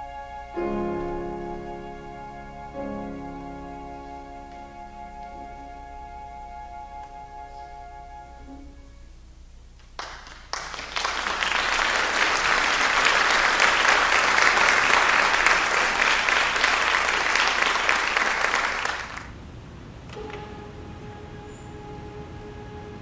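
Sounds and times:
held instrumental note: 0:00.0 - 0:09.2
audience applauding: 0:09.9 - 0:19.3.

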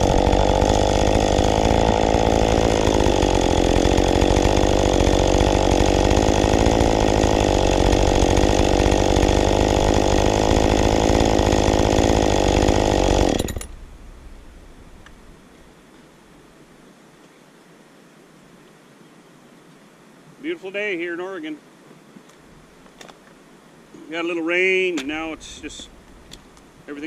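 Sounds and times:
chainsaw cutting log: 0:00.0 - 0:15.3, 0:25.0 - 0:26.4.

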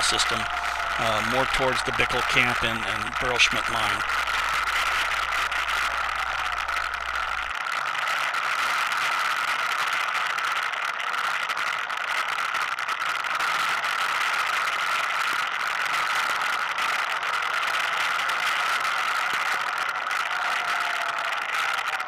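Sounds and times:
atv engine drone: 0:00.0 - 0:07.5.

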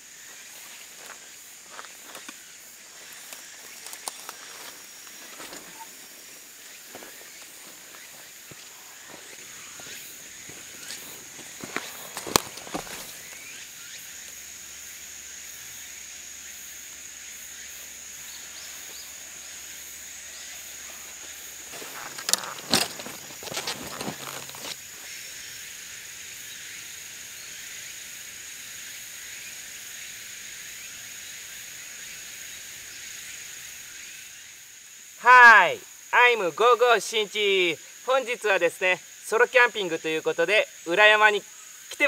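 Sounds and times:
high-pitched insect buzz: 0:00.0 - 0:42.0
knocks and rustles of gear: 0:10.8 - 0:13.3, 0:21.7 - 0:24.8.

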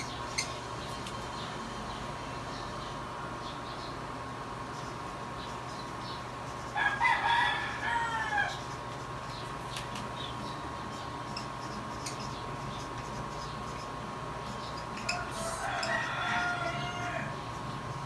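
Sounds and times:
faint steady hum: 0:00.0 - 0:18.0
rooster crowing: 0:06.7 - 0:08.6, 0:15.0 - 0:17.5.

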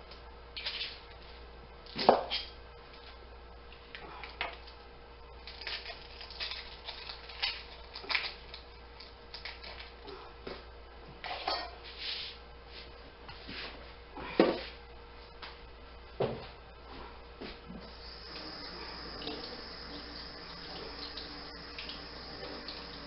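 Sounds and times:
onion skin crackling: 0:05.4 - 0:10.0.

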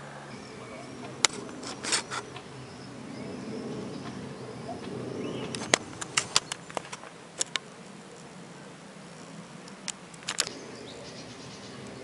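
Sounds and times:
aircraft humming overhead: 0:00.0 - 0:12.0
camera handling clicks and knocks: 0:09.9 - 0:10.5.

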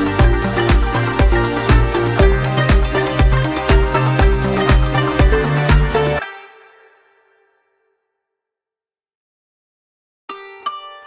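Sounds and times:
music with steady beat: 0:00.0 - 0:06.3.

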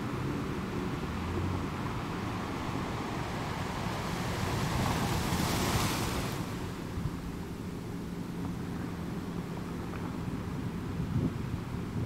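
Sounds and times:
surf: 0:00.0 - 0:07.5.

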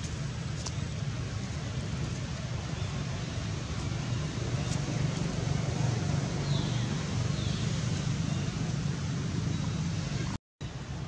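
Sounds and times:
outdoor background rumble: 0:00.0 - 0:11.0.

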